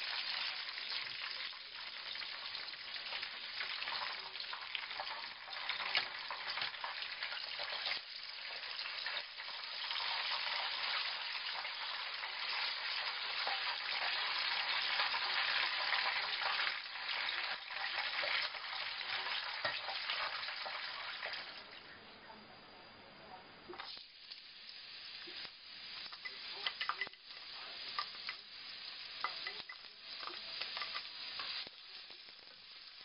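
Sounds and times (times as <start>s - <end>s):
chicken sizzling in hot oil: 0.0s - 21.8s, 23.7s - 33.0s.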